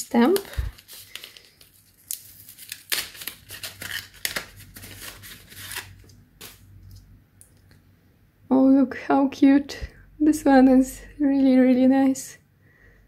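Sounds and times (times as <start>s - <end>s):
paper envelope rustling and tearing: 0.0s - 7.0s.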